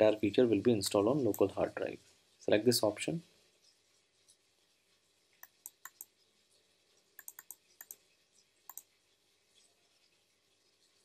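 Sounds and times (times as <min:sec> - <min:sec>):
computer mouse clicking: 0:05.4 - 0:06.1, 0:07.2 - 0:08.0, 0:08.7 - 0:08.9.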